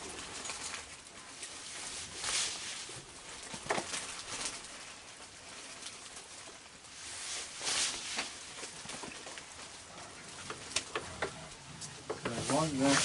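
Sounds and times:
steady hiss: 10.8 - 13.0.

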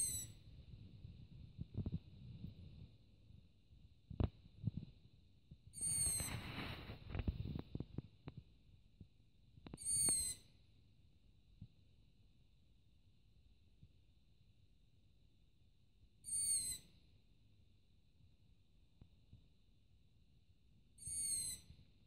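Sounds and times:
owl squeaky begging call: 0.0 - 0.4, 5.8 - 6.4, 9.8 - 10.5, 16.2 - 16.9, 21.0 - 21.7.

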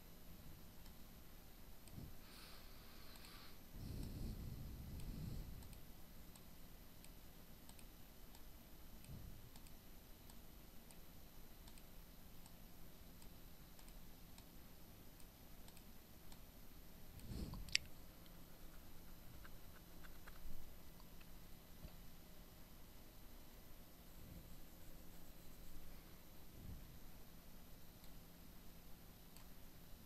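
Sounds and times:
faint ticks: 4.9 - 14.6
faint mouse clicks: 5.0 - 12.6, 13.2 - 14.6, 15.2 - 16.5, 29.3 - 29.6.

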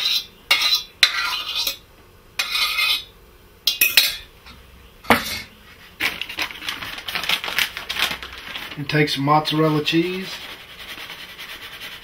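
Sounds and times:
spoon scraping saucepan: 0.0 - 1.8, 2.4 - 3.1.

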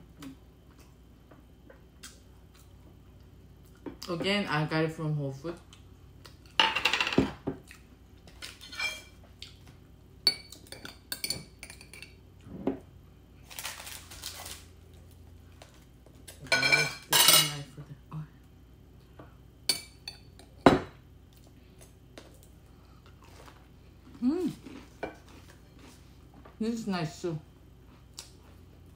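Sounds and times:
knife clinking and scraping dishes: 8.5 - 9.2, 16.3 - 17.6.

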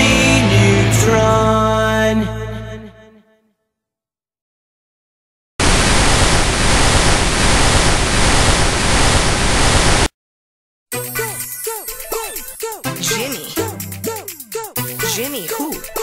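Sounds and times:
tv static hiss: 5.6 - 10.1
song ending: 11.0 - 16.0.

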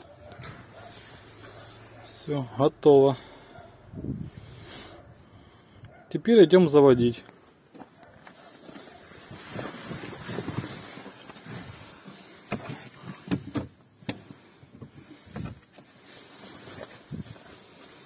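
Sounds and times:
rustling and shuffling: 0.0 - 2.2, 7.3 - 18.0.

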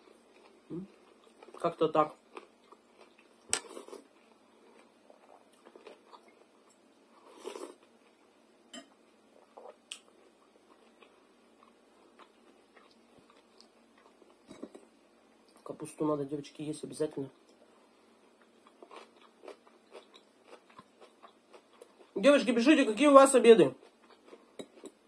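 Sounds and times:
person chewing: 0.0 - 1.6, 2.2 - 8.2, 9.4 - 14.9, 17.4 - 22.2, 23.8 - 25.0.

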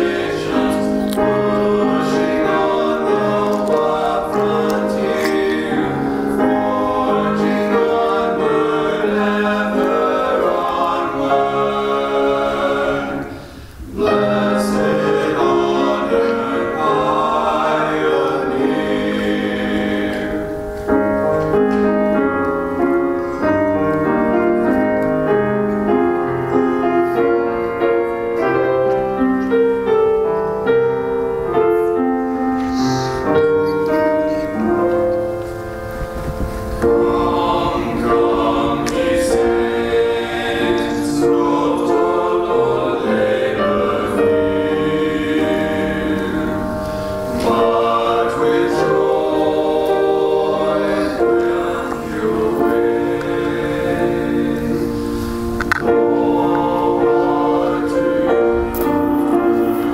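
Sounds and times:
male vocal quartet singing: 0.0 - 20.8, 36.8 - 59.9
piano and organ playing hymn: 0.0 - 59.9.

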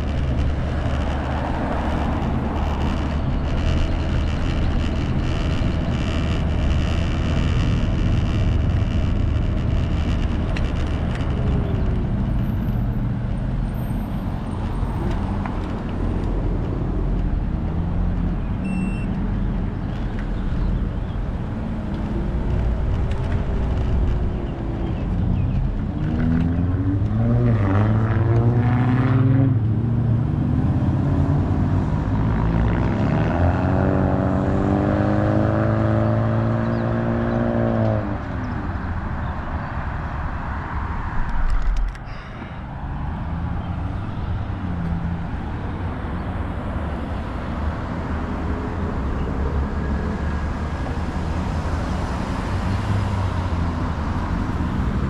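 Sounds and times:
car engines speeding up: 0.0 - 18.4, 20.8 - 39.0
rumble of passing cars: 0.0 - 55.0.

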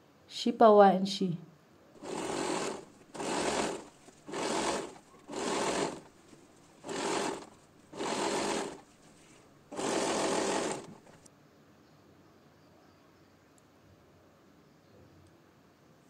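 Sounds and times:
sewing machine stitching: 2.0 - 11.3.

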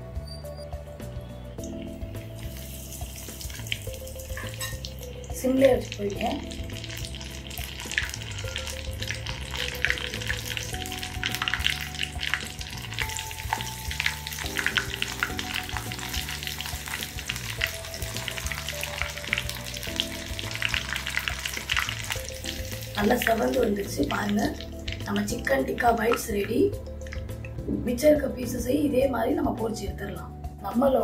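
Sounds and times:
chicken deep-frying in hot oil: 1.9 - 27.2.

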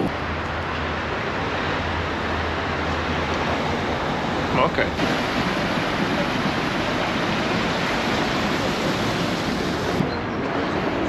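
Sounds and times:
city street ambience: 0.0 - 11.0.

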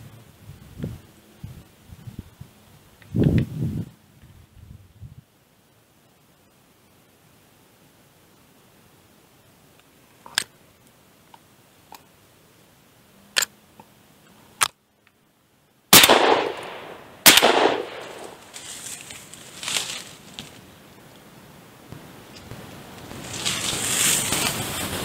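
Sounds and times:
shotgun shots: 15.9 - 18.5.

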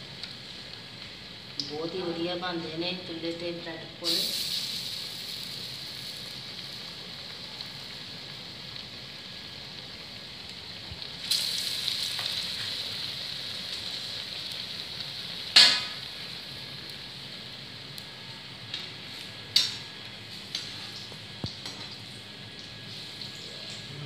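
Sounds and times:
bread deep-frying in hot oil: 0.0 - 24.0.

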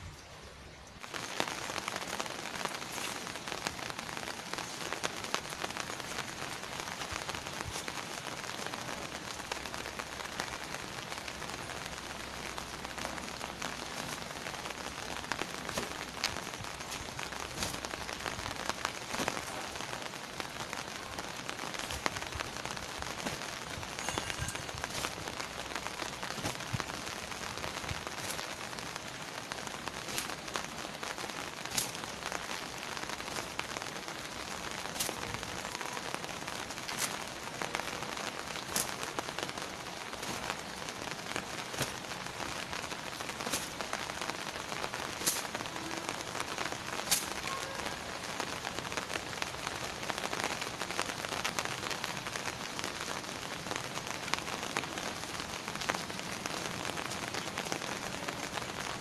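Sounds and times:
steady rain hiss: 0.0 - 59.0.

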